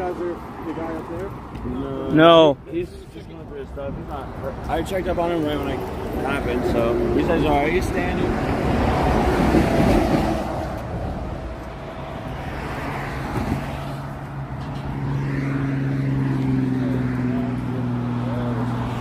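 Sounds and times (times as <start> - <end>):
truck passing at speed: 4.1 - 19.0.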